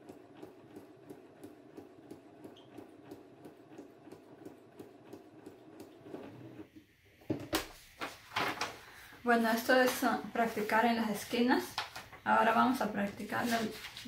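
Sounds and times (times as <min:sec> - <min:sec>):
sewing machine stitching: 0:00.0 - 0:06.7.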